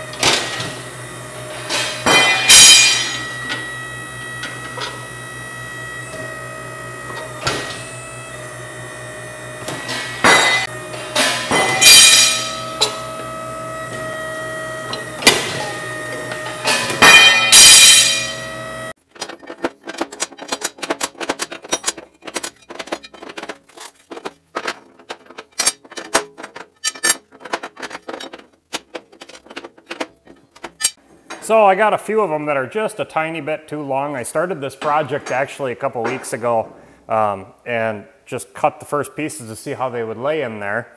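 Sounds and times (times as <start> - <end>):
steel shearing strokes: 0.0 - 18.9
metal shear motor running: 0.0 - 31.0
steel ringing: 0.1 - 7.4, 8.4 - 18.9.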